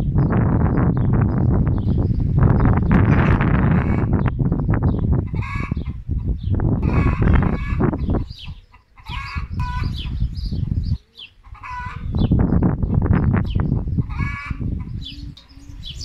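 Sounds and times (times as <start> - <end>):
wind buffeting microphone: 0.0 - 16.0
chicken clucking: 3.2 - 4.2, 5.2 - 12.3, 13.6 - 15.5.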